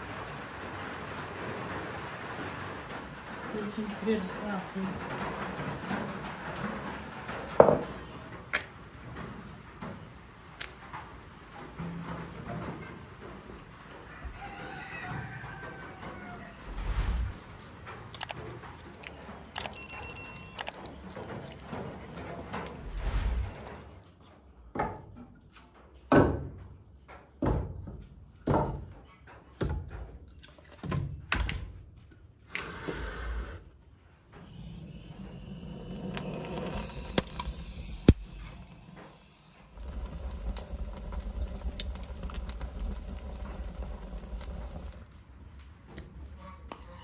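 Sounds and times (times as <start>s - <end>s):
wood fire crackling: 16.3s - 21.6s, 22.6s - 23.9s, 34.4s - 45.2s.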